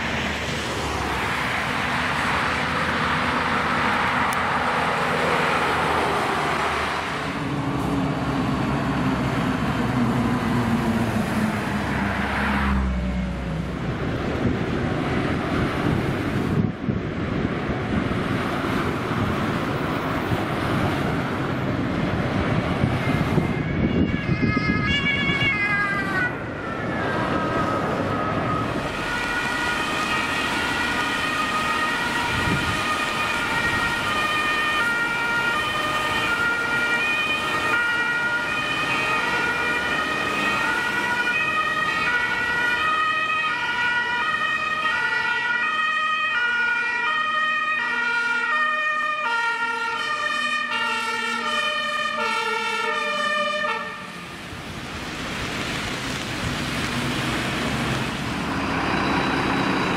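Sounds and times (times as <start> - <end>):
traffic on a wet road: 0.0 - 59.9
two-tone emergency sirens: 22.0 - 54.3.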